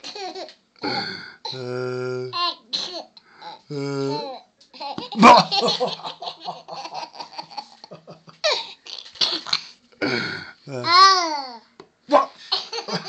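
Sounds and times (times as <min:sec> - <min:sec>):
baby laughing: 0:02.4 - 0:09.6.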